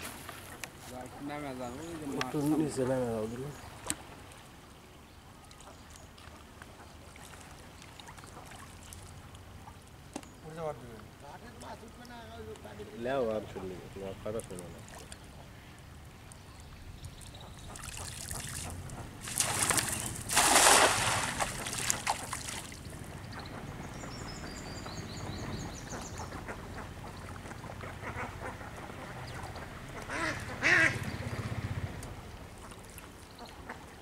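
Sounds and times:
net splashing onto water: 0:17.7 - 0:22.9
bird chirping: 0:22.7 - 0:26.8.

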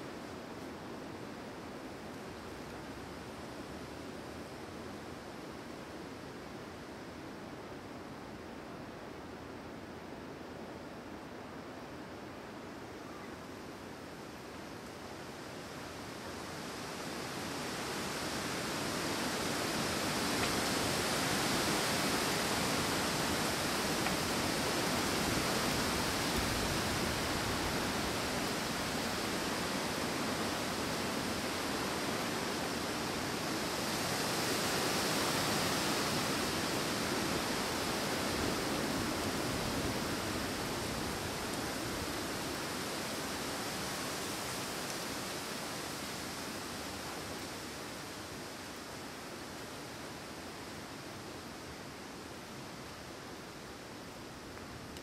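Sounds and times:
wind blowing through trees: 0:00.0 - 0:55.0.

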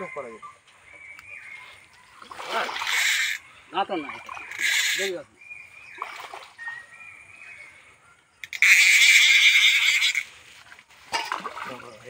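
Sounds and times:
fish splashing at water surface: 0:02.2 - 0:03.4, 0:11.1 - 0:12.0.

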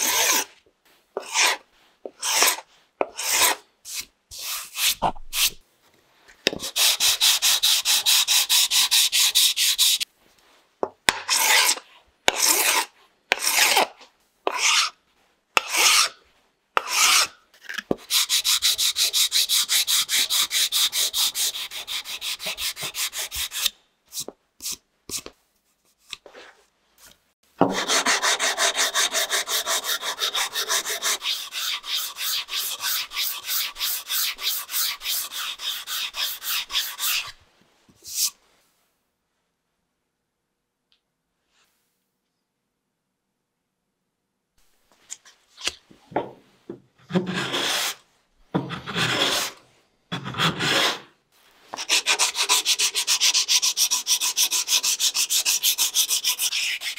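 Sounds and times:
sandpaper scraping wood: 0:00.0 - 0:00.6, 0:01.2 - 0:01.6, 0:02.2 - 0:05.6, 0:06.6 - 0:10.1, 0:11.3 - 0:11.8, 0:12.4 - 0:13.9, 0:14.5 - 0:15.0, 0:15.6 - 0:16.2, 0:16.9 - 0:17.3, 0:18.0 - 0:25.2, 0:27.7 - 0:37.4, 0:47.1 - 0:48.0, 0:48.8 - 0:51.1, 0:51.7 - 0:56.9.

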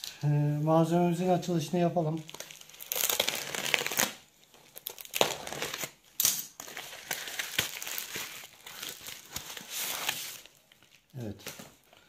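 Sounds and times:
bubble-wrap mailer crinkling: 0:01.8 - 0:12.0.

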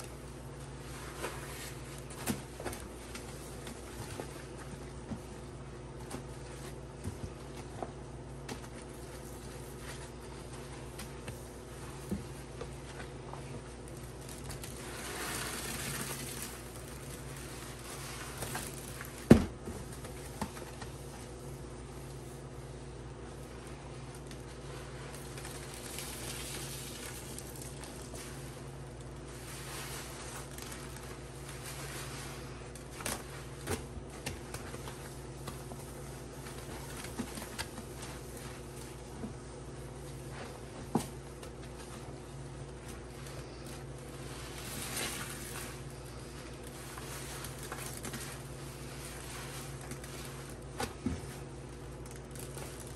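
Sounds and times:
steady low hum: 0:00.0 - 0:52.9
wet sponges squelching: 0:00.2 - 0:07.7, 0:08.8 - 0:19.2, 0:23.5 - 0:39.2, 0:42.9 - 0:51.5.

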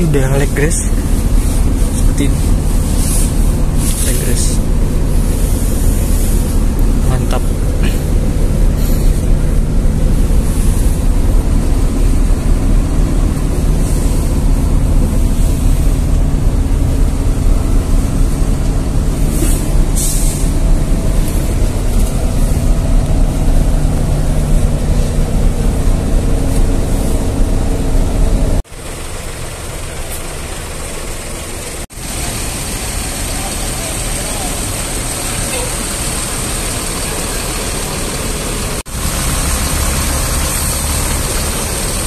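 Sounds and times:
diesel engine rumble: 0:00.0 - 0:42.0
short hisses: 0:19.3 - 0:20.6.

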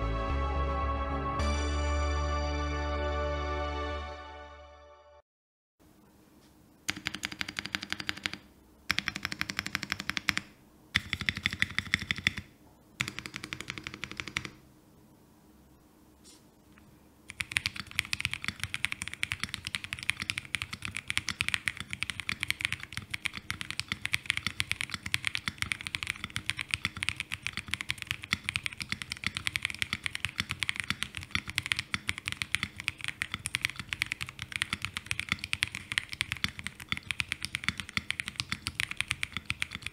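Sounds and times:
mechanical keyboard typing: 0:06.9 - 0:14.6, 0:17.3 - 0:39.9.

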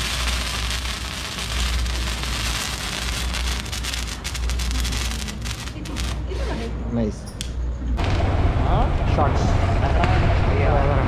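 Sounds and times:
low rumble: 0:00.0 - 0:06.4, 0:07.6 - 0:11.0
firework hissing spray: 0:00.0 - 0:06.5.

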